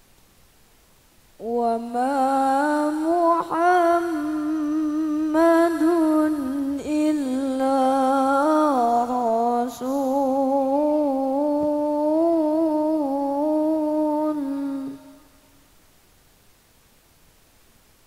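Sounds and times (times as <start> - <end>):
person chanting melodic recitation: 1.4 - 15.3.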